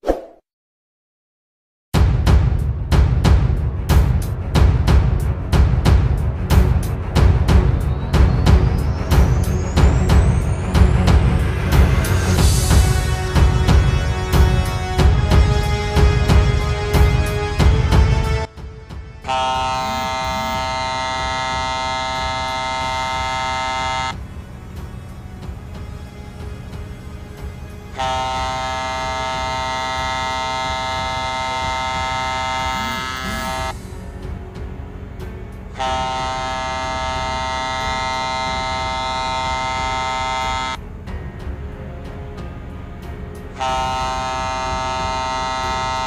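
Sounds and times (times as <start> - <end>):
ship's horn blast: 11.7 - 18.6, 19.2 - 24.2, 27.9 - 33.8, 35.6 - 40.8, 43.5 - 46.0
engine noise: 19.3 - 25.0, 27.9 - 34.0, 35.4 - 40.8.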